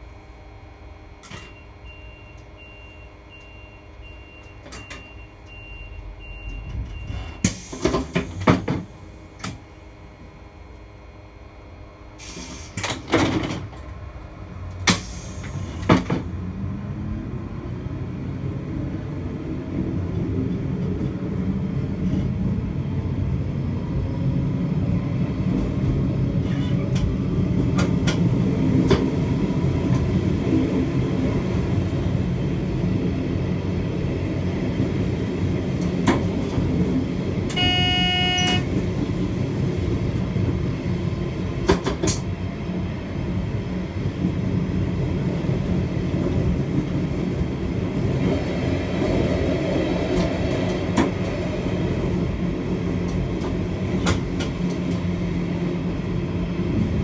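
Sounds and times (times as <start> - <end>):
train rumbling on rails: 0.0 - 57.0
train drive note rising: 13.8 - 41.6
horn-like tone: 37.5 - 38.8.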